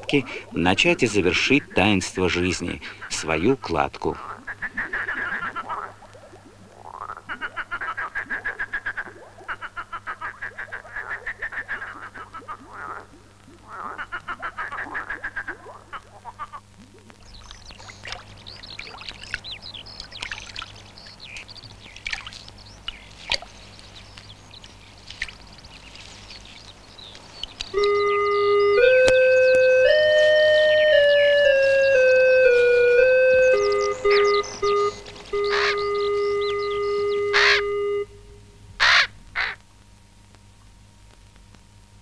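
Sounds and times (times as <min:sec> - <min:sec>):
frogs croaking: 0:00.0 - 0:39.8
water splashing and dripping: 0:04.2 - 0:27.8
music with held notes: 0:27.8 - 0:38.6.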